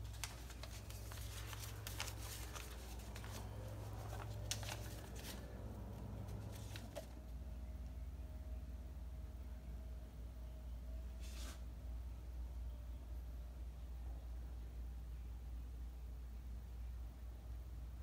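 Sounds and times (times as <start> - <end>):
paper rustling: 0.0 - 7.2.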